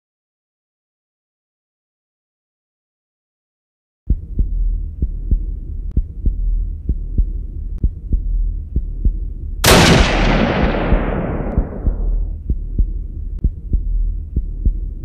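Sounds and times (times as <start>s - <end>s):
heartbeat-like thumps: 4.1s - 15.0s
low humming drone: 4.1s - 15.0s.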